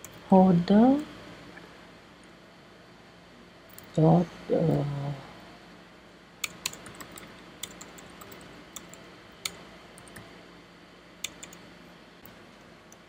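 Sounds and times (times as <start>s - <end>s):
faint steady hum: 0.0s - 13.0s
keyboard keys tapping: 11.2s - 11.6s.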